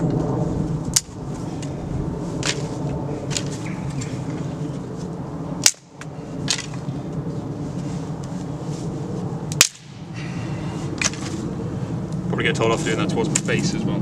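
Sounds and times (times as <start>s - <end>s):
low background rumble: 0.0s - 14.0s
wooden sticks snapping: 0.9s - 1.1s, 2.4s - 2.7s, 5.6s - 6.8s, 9.5s - 9.9s, 11.0s - 11.3s.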